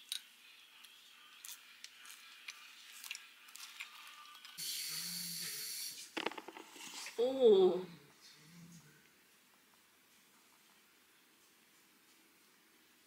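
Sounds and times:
steady hiss: 4.6 - 7.2.

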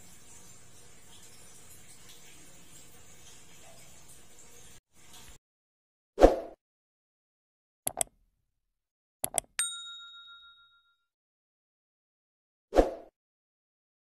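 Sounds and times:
mouse double clicks: 7.9 - 8.1
notification bell ding: 9.6 - 11.1.

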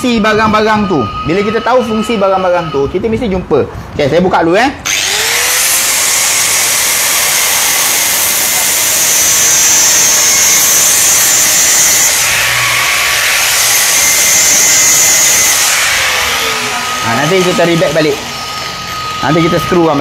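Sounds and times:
angle grinder grinding plastic: 4.9 - 20.0.

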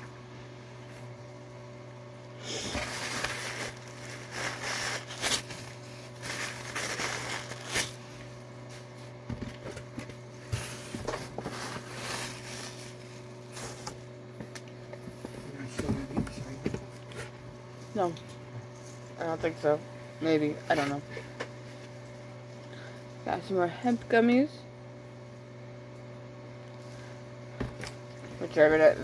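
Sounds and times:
steady low hum: 0.0 - 29.0
blanket and packaging rustling: 2.6 - 9.0, 10.2 - 14.0.

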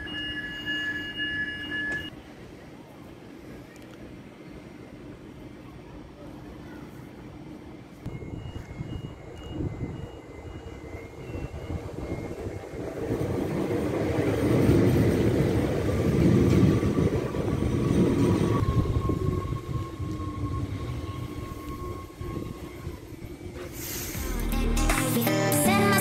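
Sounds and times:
steady train whine: 0.0 - 26.0
train wheels rumbling on rails: 8.1 - 24.4.

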